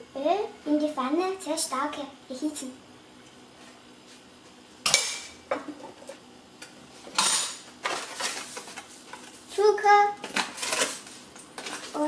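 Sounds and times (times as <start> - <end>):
kitchenware clinking and clattering: 7.1 - 8.8.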